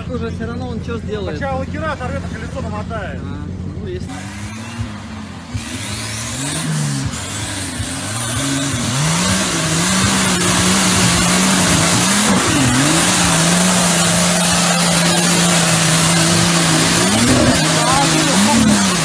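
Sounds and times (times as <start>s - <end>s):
suv engine revving hard: 4.0s - 19.0s
mud and water spray: 5.5s - 19.0s.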